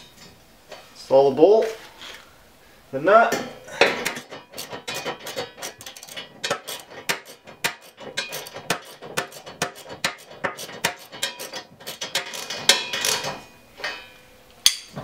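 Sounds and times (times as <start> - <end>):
ratchet wrench clicking: 4.0 - 13.3.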